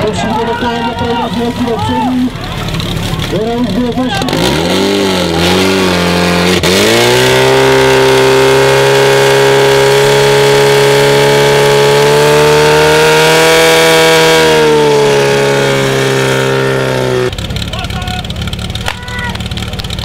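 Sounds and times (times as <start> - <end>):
fire pump engine at full throttle: 0.0 - 20.0.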